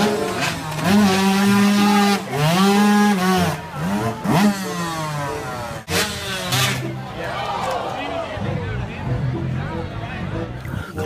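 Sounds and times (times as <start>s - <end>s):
dirt bike engine revving: 0.0s - 7.0s.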